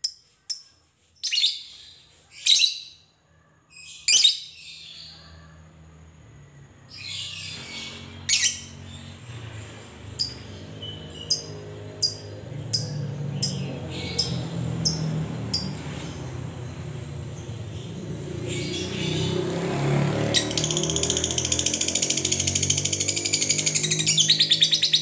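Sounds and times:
lovebird shrill calls and chirps: 3.7 - 5.2, 6.9 - 9.1, 10.0 - 15.8, 20.2 - 25.0
low vehicle rumble: 4.9 - 25.0.

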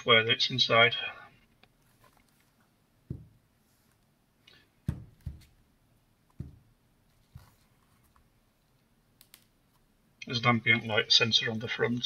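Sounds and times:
soft thumps and knocks: 3.1 - 3.4, 4.8 - 5.6, 6.3 - 6.7.

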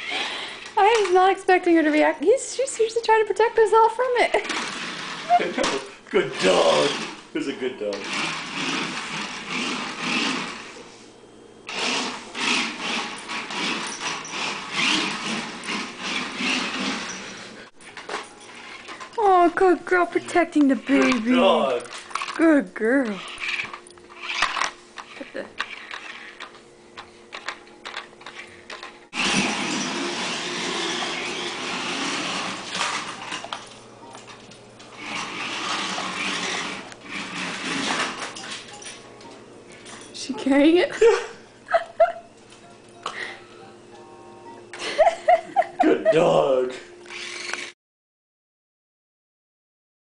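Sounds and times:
toy car electric motors whirring: 0.0 - 1.1, 4.3 - 10.8, 11.7 - 17.6, 18.5 - 19.2, 20.6 - 22.4, 23.0 - 26.6, 27.3 - 39.0, 47.0 - 47.8.

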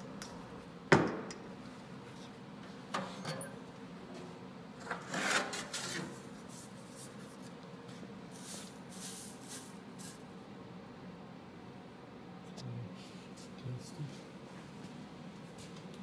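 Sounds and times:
hand raking through seeds: 8.3 - 10.2.

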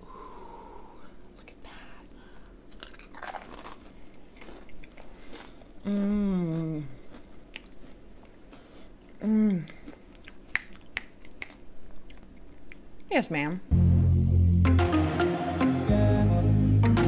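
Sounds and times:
person chewing crunchy food: 2.4 - 13.0
person humming mmm: 5.8 - 7.2, 9.2 - 10.0.

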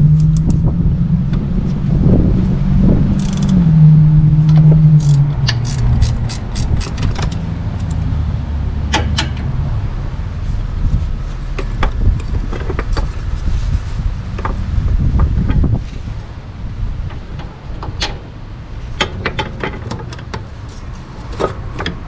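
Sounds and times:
steady low rumble: 0.0 - 22.0
ratchet wrench clicking: 3.2 - 3.6, 5.0 - 8.1.

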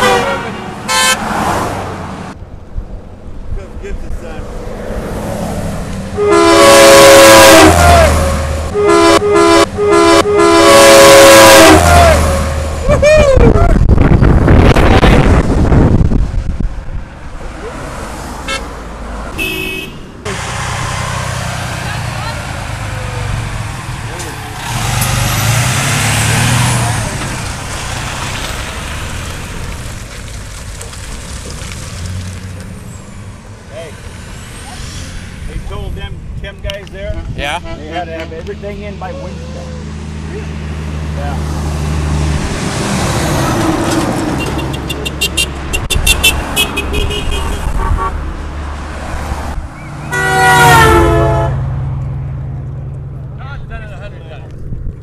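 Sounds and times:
long horn blast: 0.0 - 1.4, 6.1 - 12.9, 18.4 - 20.5, 44.3 - 48.3, 50.1 - 51.8
horns honking: 0.0 - 1.7, 6.1 - 13.2, 18.3 - 20.6, 44.2 - 48.4, 50.0 - 51.7
traffic passing: 0.0 - 55.0
truck driving past: 17.1 - 35.5, 39.2 - 53.4.

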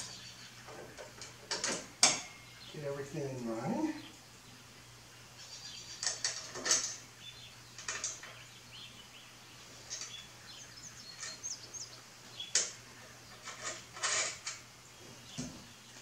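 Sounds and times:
metal bracket clicks and scrapes: 6.0 - 7.0, 12.6 - 14.7.

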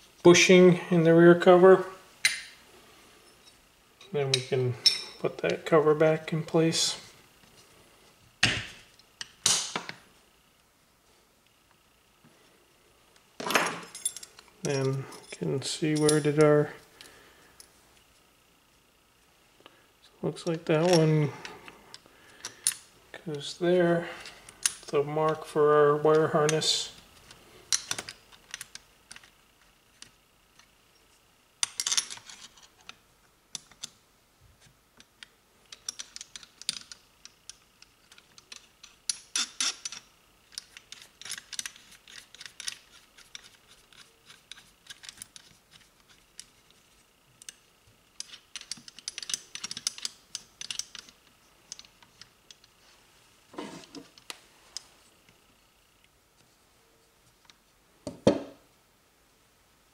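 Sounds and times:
metallic clicks and rattles: 48.2 - 52.7.

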